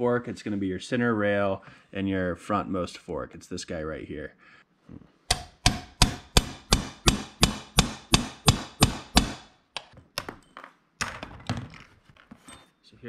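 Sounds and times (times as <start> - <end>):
hammer striking metal punch: 5.3 - 10.3.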